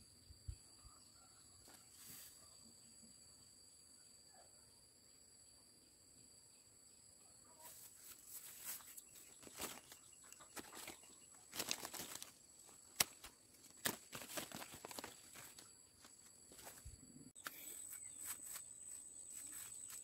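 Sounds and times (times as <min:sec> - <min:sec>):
rustling and crackling: 0:07.7 - 0:17.0.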